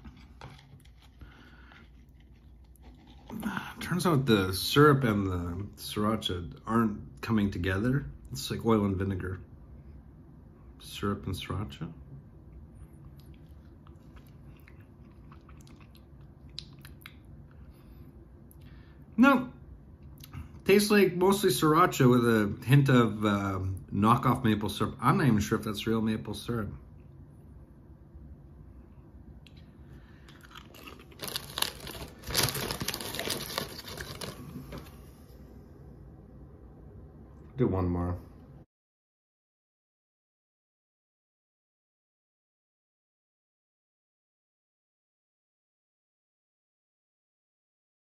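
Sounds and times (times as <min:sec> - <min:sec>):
tortilla chips crunching: 0:00.0 - 0:03.9, 0:30.2 - 0:34.9
lip smacks and tongue clicks: 0:13.0 - 0:17.2.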